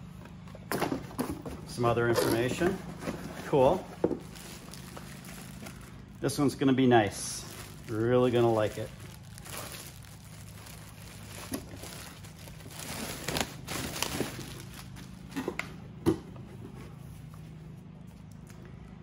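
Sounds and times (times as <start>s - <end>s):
plastic bag crinkling: 3.4s - 15.4s.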